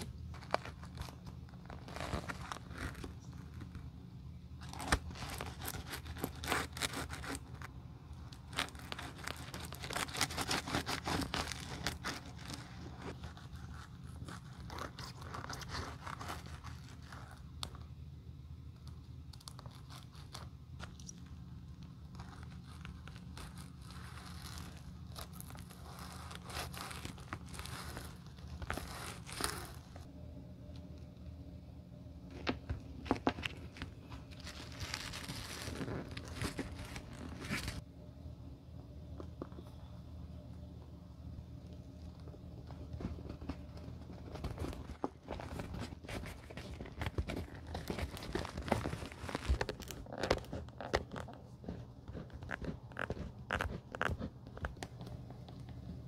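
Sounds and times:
low hum: 0:00.0 - 0:56.0
metal spatula scraping and tearing: 0:08.4 - 0:17.4.

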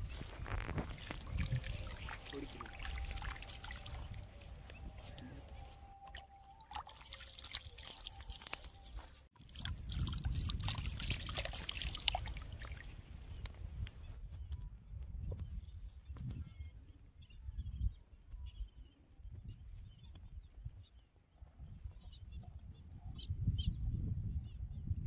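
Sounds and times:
pond water splashing and trickling: 0:00.0 - 0:13.4
fish thrashing in water: 0:00.2 - 0:04.8, 0:05.9 - 0:13.0.

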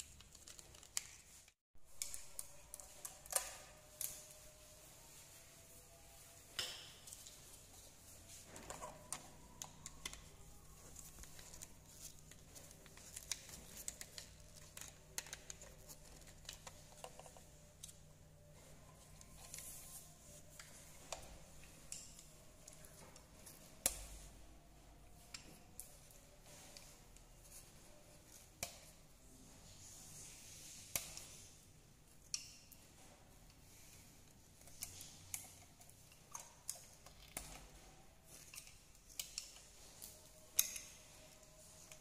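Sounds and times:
wires clicking and rustling: 0:00.0 - 0:42.0.

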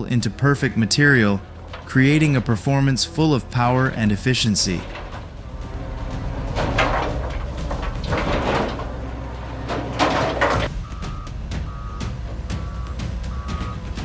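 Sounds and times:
heavy diesel machinery rumbling: 0:00.0 - 0:14.0
reversing alarm beeping: 0:10.8 - 0:14.0.

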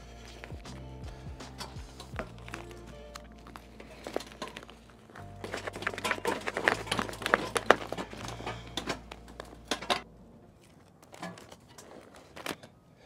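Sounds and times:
foil insulation crinkling: 0:02.1 - 0:10.0, 0:10.6 - 0:12.8.

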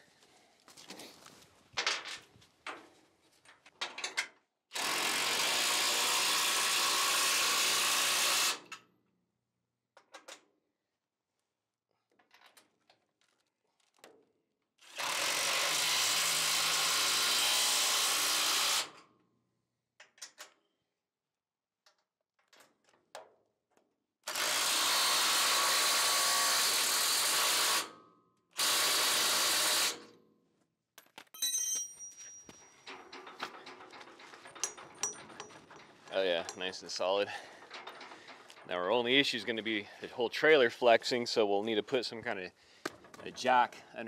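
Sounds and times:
impact wrench running bolts: 0:31.8 - 0:38.7
hand wrench clicking on bolts: 0:32.9 - 0:36.7.

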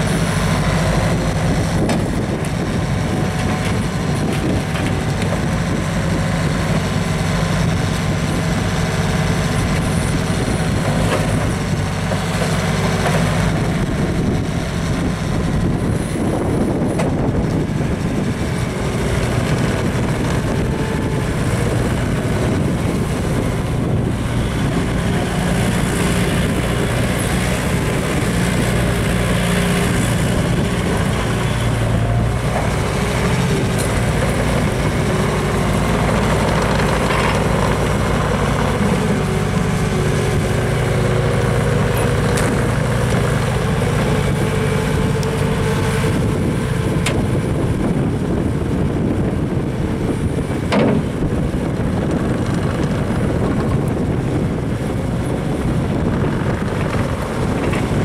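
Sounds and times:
diesel engine running: 0:00.0 - 0:58.0
rubber tracks rolling over gravel: 0:15.5 - 0:58.0.

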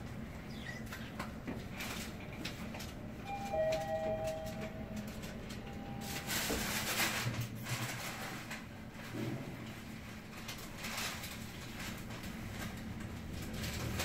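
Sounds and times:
moving elevator car noise: 0:00.0 - 0:14.0
two-note falling elevator chime: 0:03.3 - 0:06.3.

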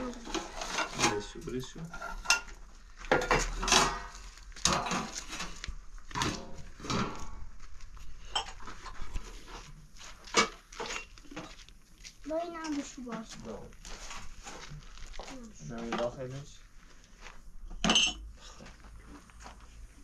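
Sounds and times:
pots and dishware clattering: 0:00.2 - 0:05.4, 0:08.3 - 0:08.7, 0:17.8 - 0:18.2.

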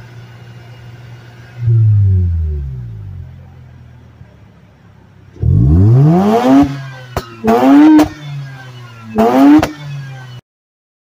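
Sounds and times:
rotary car engine revving: 0:01.6 - 0:04.1, 0:05.3 - 0:10.4.

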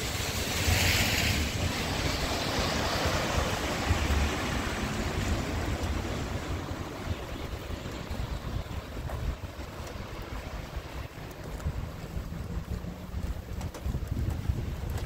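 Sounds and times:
tyres hissing on wet road: 0:00.0 - 0:09.0
wind rumble on microphone: 0:00.0 - 0:15.0.

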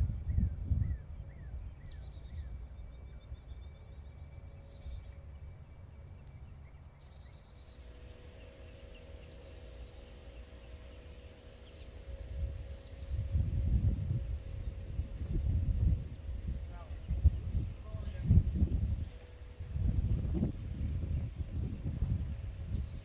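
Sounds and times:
low outdoor rumble: 0:00.0 - 0:23.0
songbird singing trills: 0:00.0 - 0:23.0.

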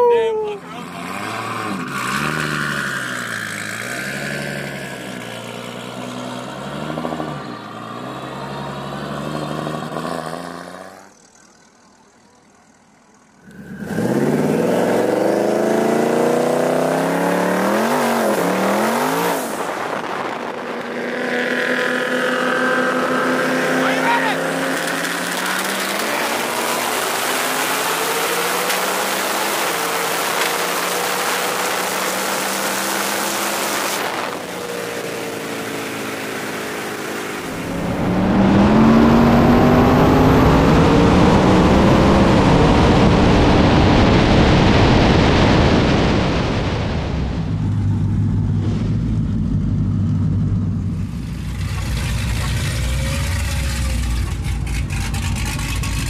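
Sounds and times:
race car engines accelerating: 0:00.0 - 0:56.0
low engine rumble: 0:37.4 - 0:56.0.

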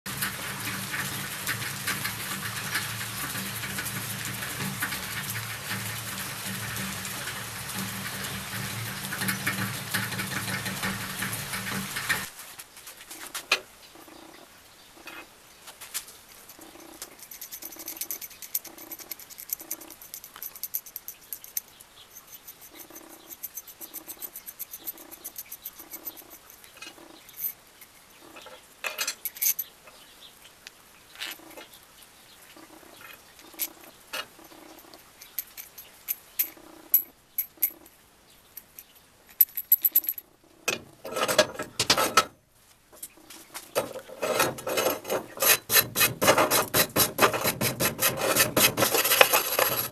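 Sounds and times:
hand file rasping on steel: 0:16.3 - 0:26.7, 0:44.1 - 0:49.9
small metal parts clinking: 0:16.3 - 0:28.1, 0:28.8 - 0:29.8, 0:33.0 - 0:40.3, 0:48.8 - 0:49.9.

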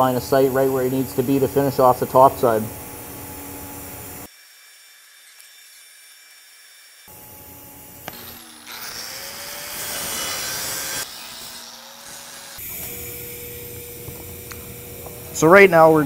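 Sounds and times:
angle grinder grinding steel: 0:00.0 - 0:16.0
welding arc hissing: 0:00.0 - 0:16.0.

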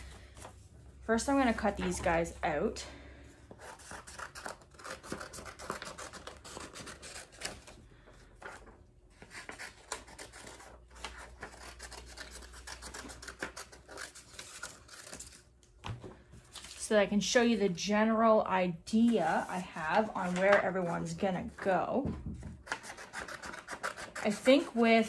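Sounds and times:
scissors snipping paper: 0:03.6 - 0:07.7, 0:09.2 - 0:15.4, 0:22.6 - 0:24.8
paper rustling: 0:19.0 - 0:21.1.

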